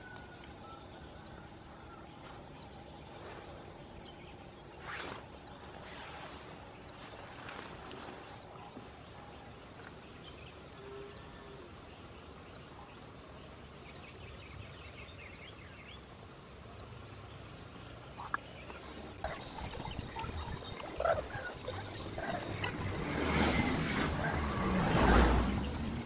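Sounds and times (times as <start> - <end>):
hissy outdoor ambience: 0.0 - 26.0
small animal calls: 18.2 - 26.0.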